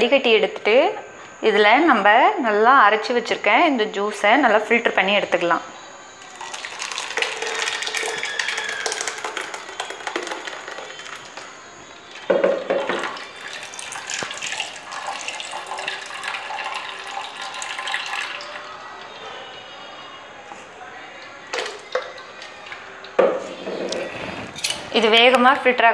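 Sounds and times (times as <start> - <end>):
liquid pouring and trickling: 6.2 - 18.8, 21.5 - 23.2.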